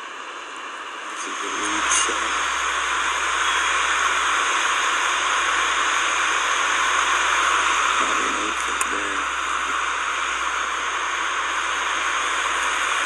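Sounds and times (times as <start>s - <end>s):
faint low voices: 1.1s - 2.7s.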